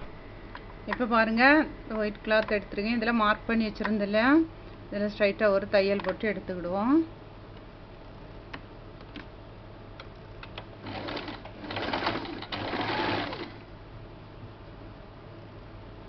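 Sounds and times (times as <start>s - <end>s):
sewing machine stitching: 10.8s - 13.6s.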